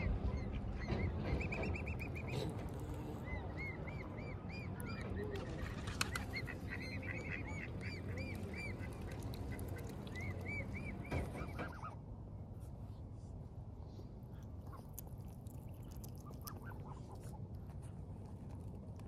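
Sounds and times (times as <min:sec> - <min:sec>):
young waterfowl peeping: 0:00.0 - 0:12.0, 0:14.4 - 0:17.5
low background noise: 0:00.0 - 0:19.0.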